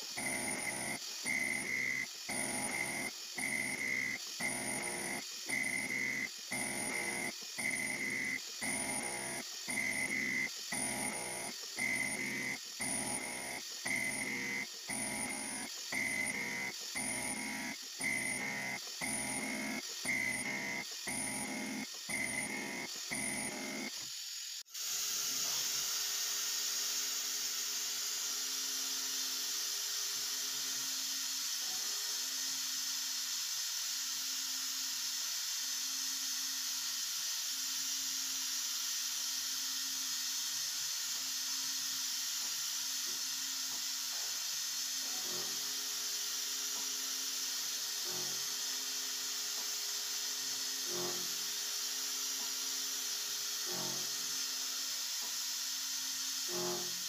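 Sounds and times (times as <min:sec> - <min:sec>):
milling machine spindle hiss: 0:00.0 - 0:57.0.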